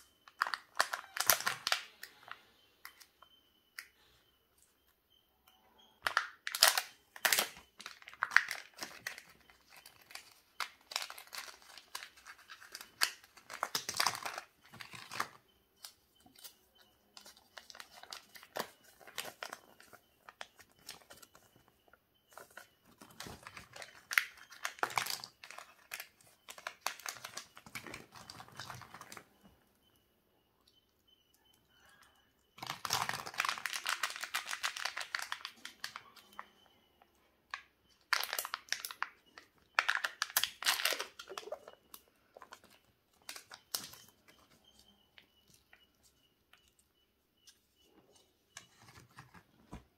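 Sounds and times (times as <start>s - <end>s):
plastic wrapping crinkling: 0.0s - 2.4s, 6.0s - 16.5s, 17.1s - 29.3s, 32.6s - 36.5s, 38.0s - 46.8s.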